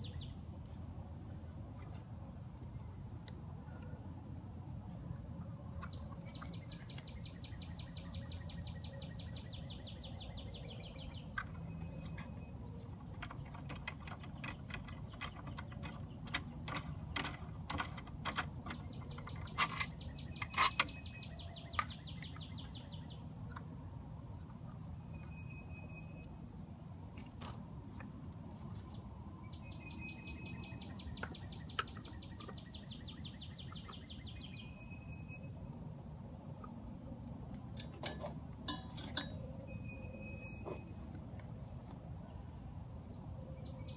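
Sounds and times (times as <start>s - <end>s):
songbird trilling: 6.3s - 12.5s, 18.8s - 23.3s, 29.5s - 35.6s
clicks and knocks of handle parts: 10.4s - 22.4s, 37.3s - 39.6s.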